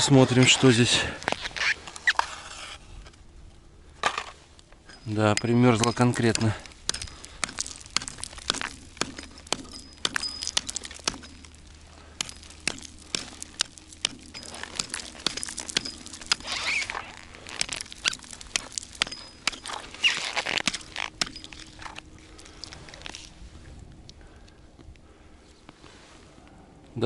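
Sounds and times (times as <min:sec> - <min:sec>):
ice cracking: 0:04.2 - 0:23.3
hatchet chopping ice: 0:04.9 - 0:22.0
ice chips scattering: 0:06.0 - 0:23.1.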